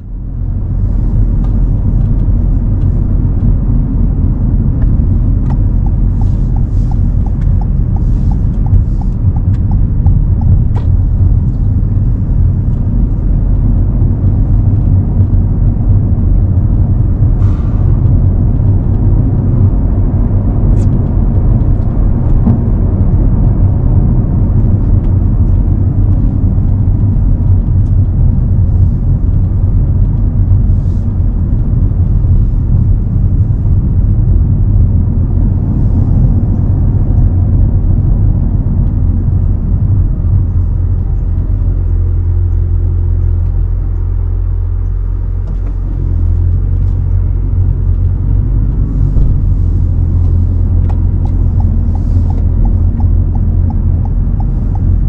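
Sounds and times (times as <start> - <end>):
car road rumble: 0.0 - 55.0
light evenly spaced ticks: 5.2 - 13.3, 49.5 - 55.0.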